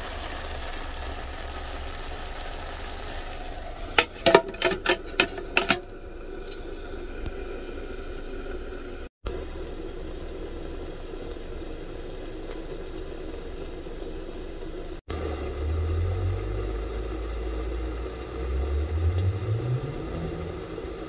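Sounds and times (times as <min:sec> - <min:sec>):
spirit burner hissing: 0:00.0 - 0:04.3, 0:05.1 - 0:21.0
low rumble rising in pitch: 0:15.1 - 0:21.0.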